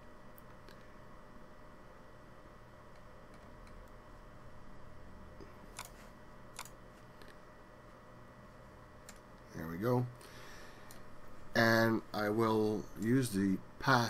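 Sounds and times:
faint room hum: 0.0s - 14.0s
computer mouse clicks: 5.7s - 7.4s.

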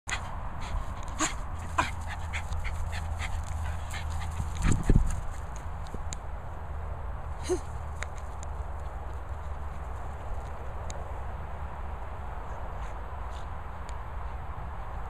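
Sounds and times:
rustles and clicks: 0.7s - 6.2s.

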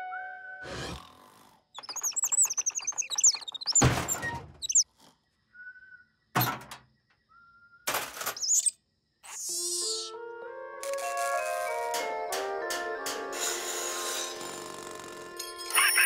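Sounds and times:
high squeaky chirps and clicks: 1.8s - 4.9s, 8.3s - 10.1s, 15.7s - 16.0s.

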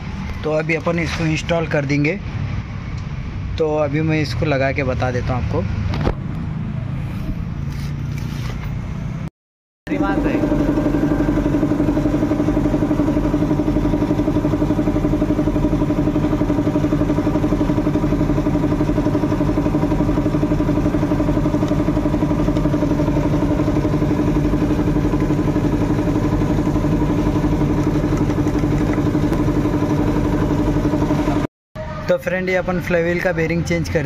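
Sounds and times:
motor running steadily: 9.9s - 31.5s.

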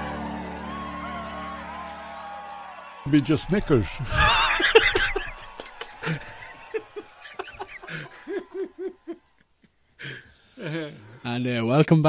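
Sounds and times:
people laughing: 3.1s - 9.4s.

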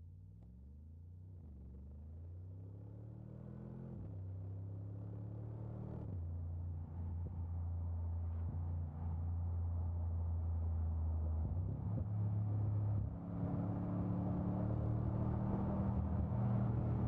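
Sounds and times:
car engine accelerating through gears: 11.4s - 17.0s.

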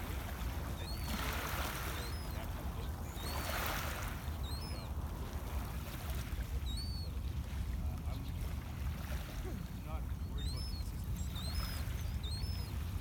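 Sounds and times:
small birds chirping: 0.8s - 3.6s, 4.4s - 4.9s, 10.2s - 12.9s.

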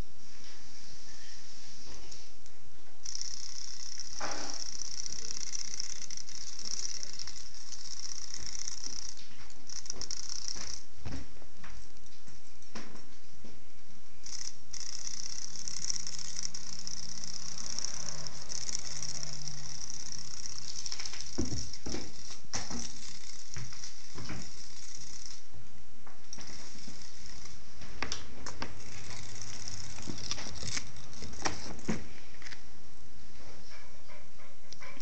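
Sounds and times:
steady high hiss: 0.0s - 35.0s
thumps and rattles: 14.3s - 25.3s.

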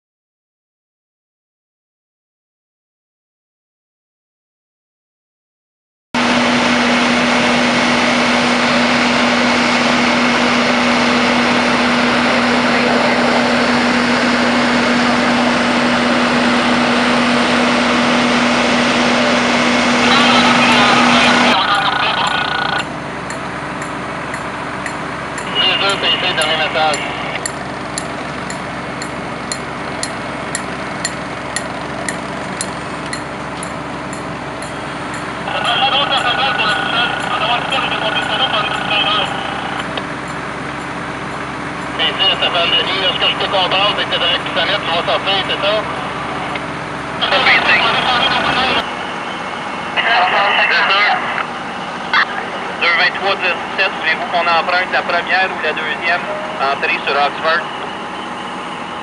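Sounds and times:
diesel engine running: 6.2s - 59.0s
steady low hum: 6.2s - 59.0s
sharp repeating tick: 22.2s - 25.6s, 26.4s - 35.4s.

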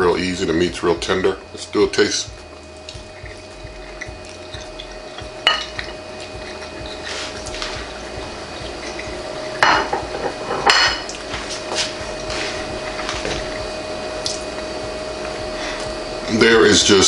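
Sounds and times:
faint steady hum: 0.0s - 17.0s
dishes clinking: 5.4s - 8.0s, 8.6s - 11.9s.

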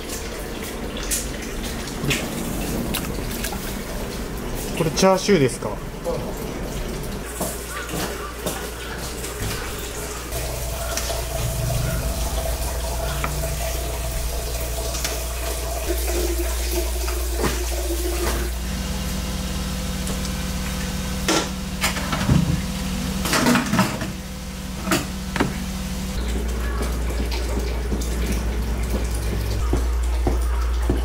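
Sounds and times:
constant low hum: 9.2s - 29.8s.

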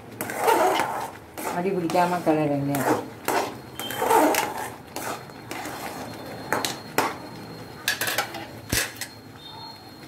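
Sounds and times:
metal spatula scraping pan: 0.2s - 7.2s.

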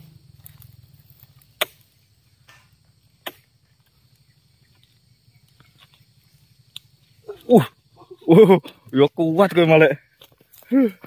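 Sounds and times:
metal tool chopping fruit bunch: 1.6s - 3.4s.

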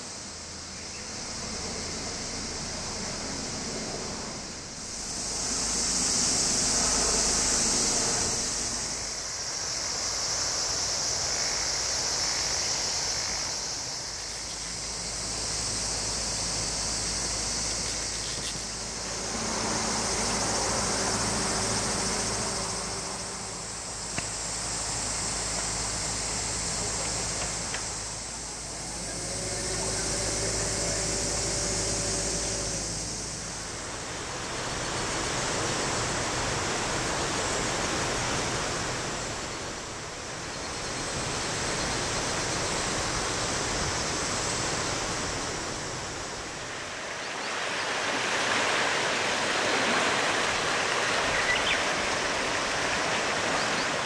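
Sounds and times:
insects buzzing: 0.0s - 54.0s
steady rushing hiss: 0.0s - 54.0s.

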